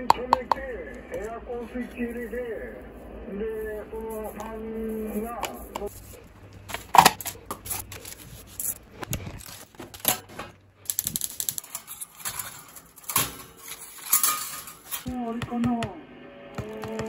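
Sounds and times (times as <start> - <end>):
metal strainer knocking plastic tubs: 0.0 - 0.6
aluminium foil crinkling: 4.0 - 15.1
metal grill tray clattering: 9.4 - 15.1.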